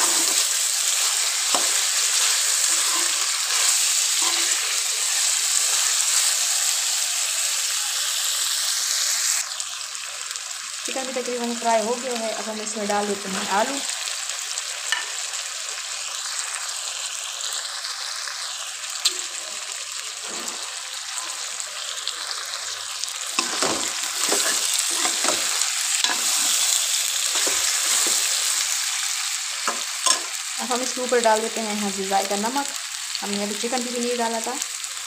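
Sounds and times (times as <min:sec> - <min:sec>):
metal spoon scraping pan: 0:00.0 - 0:04.8, 0:23.3 - 0:28.6
food sizzling in oil: 0:00.0 - 0:35.0.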